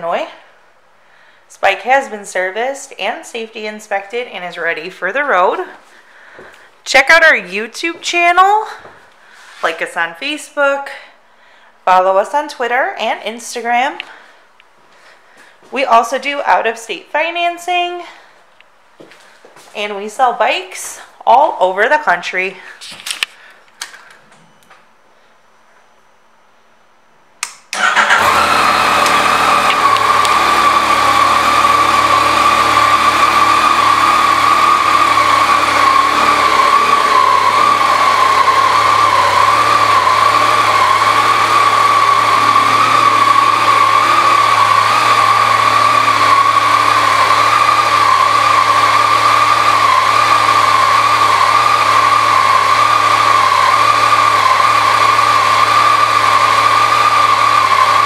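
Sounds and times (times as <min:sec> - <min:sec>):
motorcycle engine starting and idling: 0:27.7 - 0:58.0.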